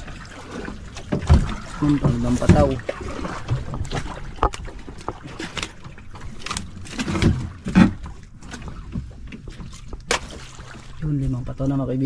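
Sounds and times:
fishing gear knocking and clattering: 0:01.0 - 0:10.5.

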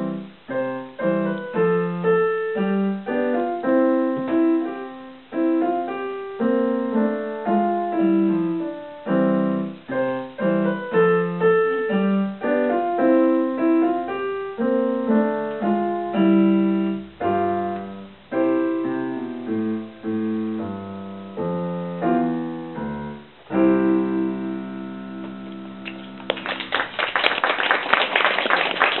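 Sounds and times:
slow piano piece: 0:00.0 - 0:29.0
applause: 0:25.9 - 0:29.0.

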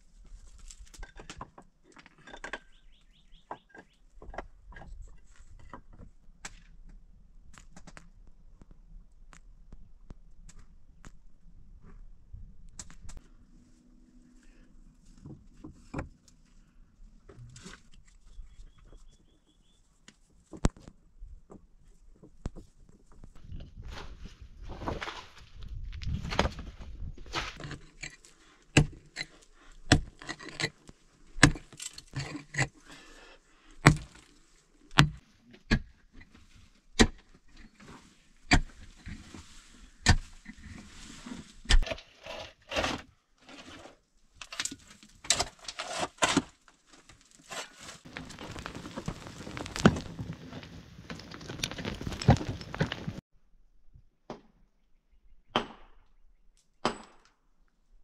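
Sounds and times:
dirt and gravel scraping and scattering: 0:23.2 - 0:33.2, 0:36.3 - 0:53.2.

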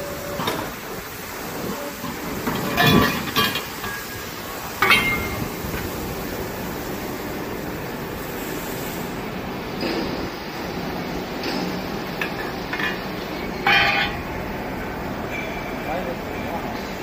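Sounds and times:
workshop machine noise: 0:00.0 - 0:17.0
metal tube clanking: 0:04.8 - 0:05.5, 0:12.2 - 0:14.3.

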